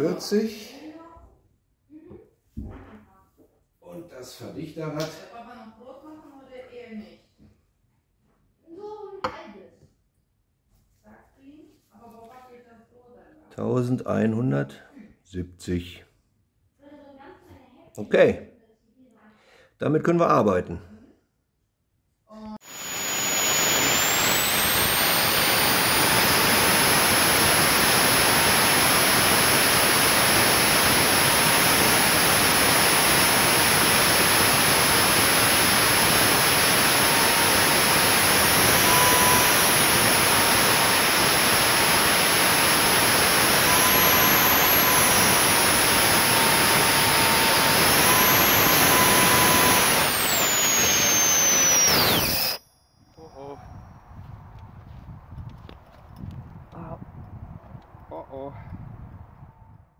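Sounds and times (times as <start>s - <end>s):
jet engine roar: 22.6s - 52.6s
high turbine whine: 22.6s - 59.9s.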